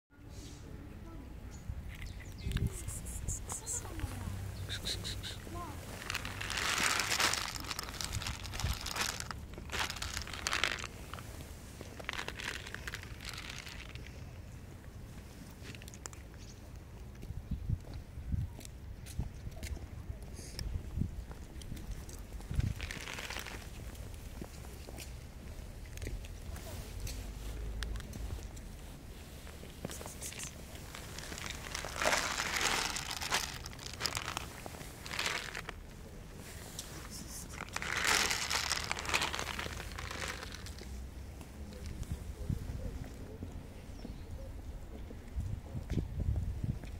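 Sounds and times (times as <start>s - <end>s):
plastic bag crinkling: 5.8s - 14.2s, 22.5s - 23.8s, 30.0s - 35.8s, 37.6s - 41.0s
cats crunching kibble: 5.8s - 14.3s, 21.6s - 24.3s, 29.5s - 35.9s, 36.7s - 41.0s
kibble rattling onto concrete: 5.9s - 11.2s, 11.9s - 14.2s, 22.0s - 23.8s, 30.0s - 35.8s, 37.6s - 40.8s.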